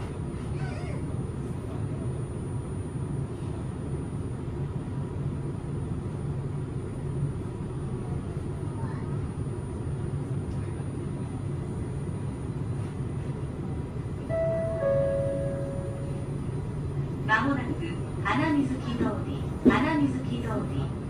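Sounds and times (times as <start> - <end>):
train low rumble: 0.0 - 21.0
faint high whine: 14.2 - 16.7.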